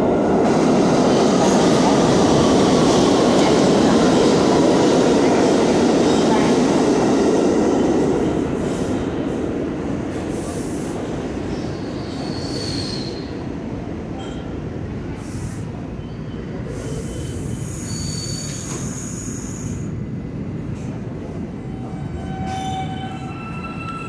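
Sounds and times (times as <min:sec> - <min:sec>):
subway trains rumbling: 0:00.0 - 0:24.0
high-pitched wheel squeals: 0:17.1 - 0:19.7, 0:21.8 - 0:24.0.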